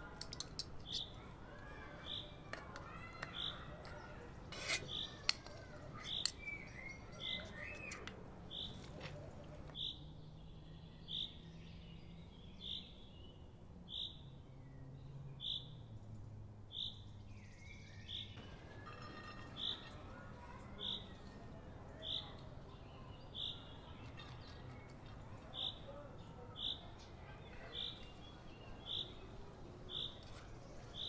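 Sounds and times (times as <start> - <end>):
bird chirping: 0.3 - 4.1, 4.8 - 8.8, 16.7 - 21.4, 22.0 - 31.0
spatula scraping metal pot: 4.5 - 5.4.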